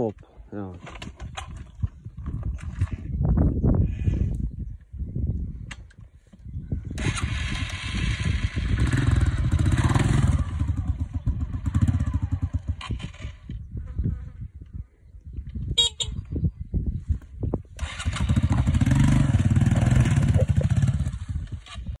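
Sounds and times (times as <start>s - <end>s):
dirt bike engine running: 6.9s - 14.3s, 17.8s - 22.0s.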